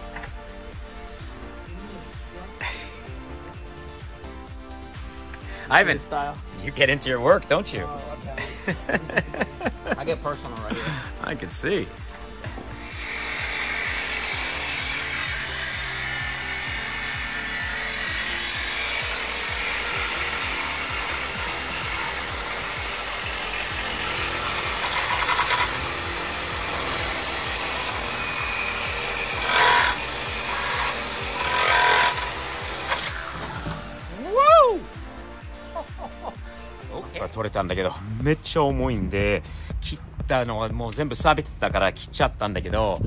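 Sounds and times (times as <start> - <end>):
power saw cutting metal pipe: 12.0 - 34.2.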